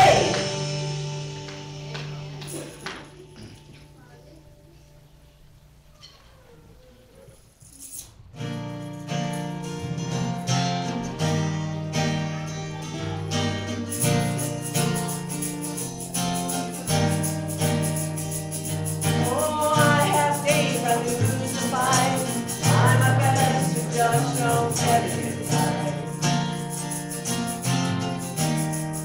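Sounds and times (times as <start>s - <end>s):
person singing: 0.0s - 0.6s, 19.1s - 26.7s
strummed acoustic guitar: 0.0s - 4.0s, 8.3s - 29.0s.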